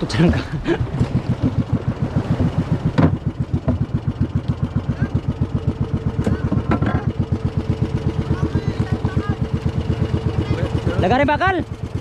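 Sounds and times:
boat engine thumping: 0:00.0 - 0:12.0
sharp knocks: 0:02.9 - 0:03.9.

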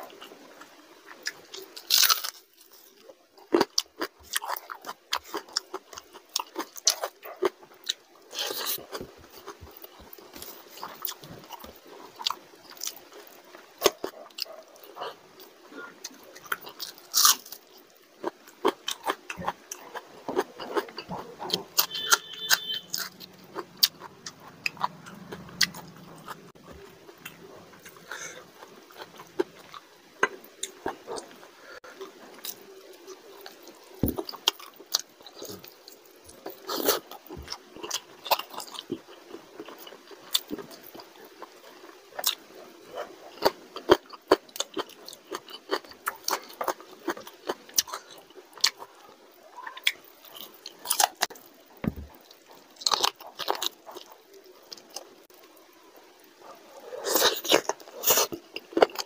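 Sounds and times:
wet chewing and mouth clicks: 0:00.2 - 0:59.0.

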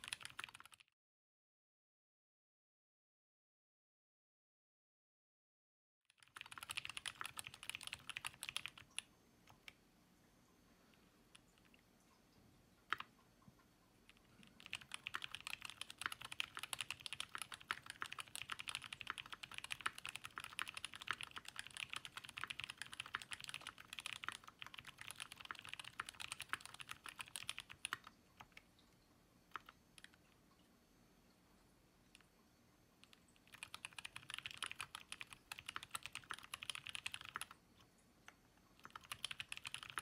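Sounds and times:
mechanical keyboard typing: 0:00.0 - 0:00.8, 0:06.2 - 0:09.8, 0:12.9 - 0:13.1, 0:14.1 - 0:28.6, 0:29.5 - 0:30.2, 0:33.0 - 0:37.6, 0:38.8 - 0:40.0.

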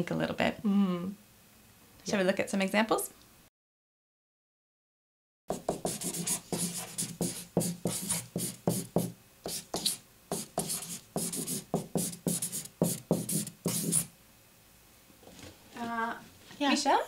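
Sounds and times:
marker pen writing on paper: 0:05.5 - 0:14.1.

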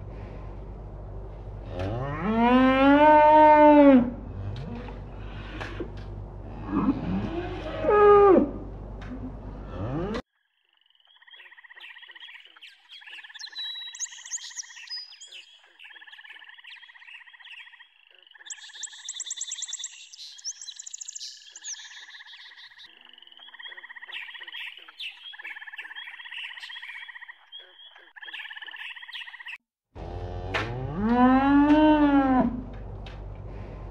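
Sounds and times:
frogs trilling: 0:10.4 - 0:29.6
high chirping: 0:18.5 - 0:29.5.

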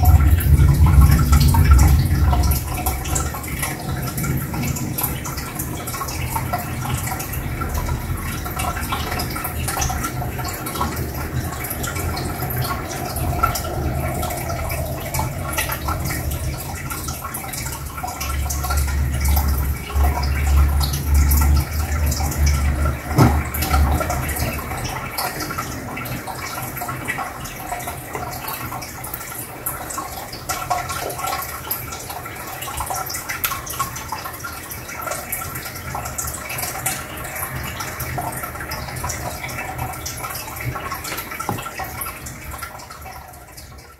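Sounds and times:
low hum: 0:00.0 - 0:27.0
aquarium filter bubbling: 0:00.0 - 0:43.9.

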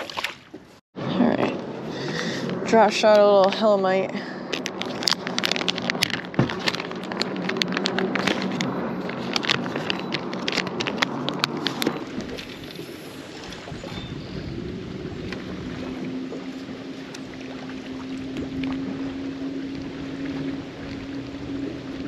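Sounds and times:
plastic package crinkling: 0:04.5 - 0:12.0.

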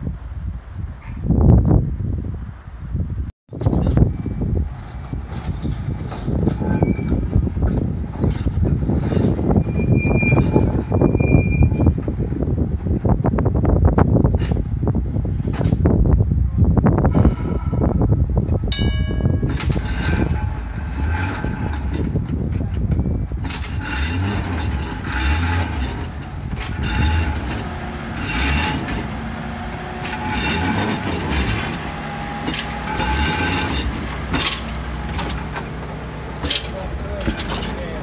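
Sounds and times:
tram rumble and hum: 0:00.0 - 0:38.0
wind buffeting microphone: 0:00.0 - 0:38.0
wheels rattling and clicking: 0:03.5 - 0:16.2, 0:18.3 - 0:38.0
short ringing tone: 0:17.2 - 0:19.7.

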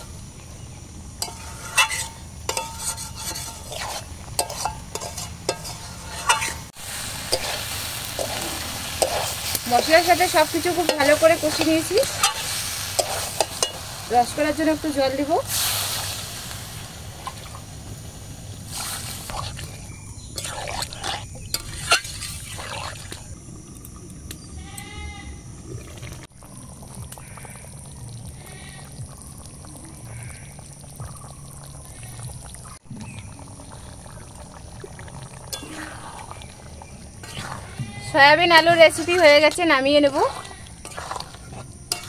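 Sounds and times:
curry bubbling: 0:00.0 - 0:24.5, 0:25.5 - 0:42.0
ladle clink: 0:01.2 - 0:06.7, 0:40.8 - 0:42.0
ladle scraping metal pot: 0:01.2 - 0:14.0, 0:20.4 - 0:23.1, 0:37.2 - 0:42.0
animal bleating: 0:24.6 - 0:25.4, 0:37.3 - 0:38.3.

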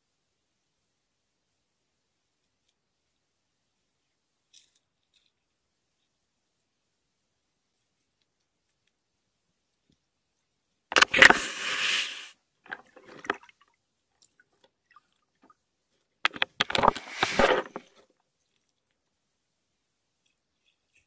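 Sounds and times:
beaver scraping and knocking: 0:10.9 - 0:13.4, 0:16.2 - 0:18.0.

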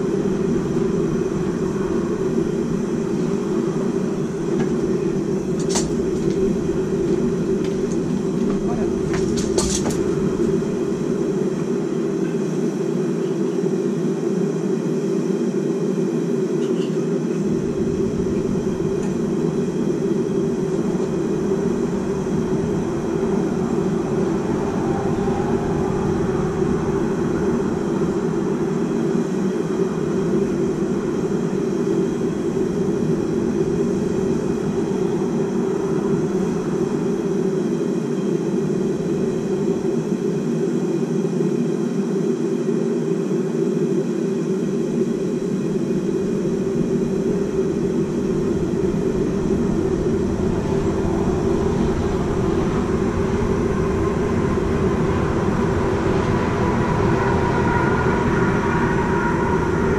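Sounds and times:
forge rushing noise: 0:17.4 - 0:40.6, 0:44.9 - 0:59.9.

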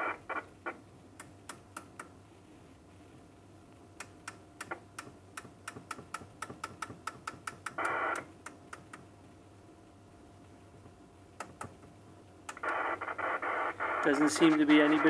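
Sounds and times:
radio speaker hiss: 0:00.0 - 0:00.8, 0:07.8 - 0:08.3, 0:12.5 - 0:15.0
radio channel selector clicking: 0:12.5 - 0:12.8.

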